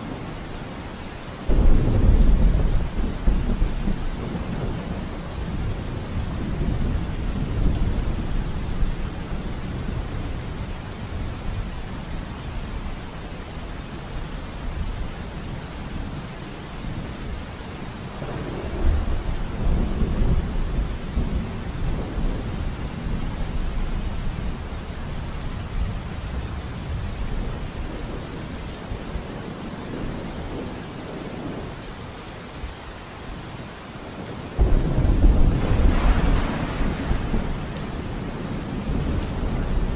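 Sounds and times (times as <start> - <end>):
steady rain: 0.0 - 39.9
rolling thunder rumbles: 1.4 - 11.6, 18.1 - 28.4, 34.6 - 39.9.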